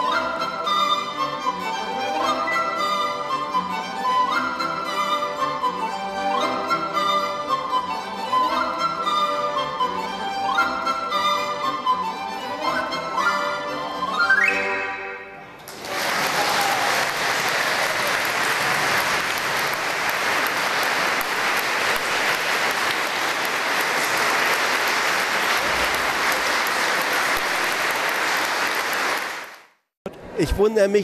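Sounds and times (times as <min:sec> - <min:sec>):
audience applauding: 0:15.6 - 0:29.8.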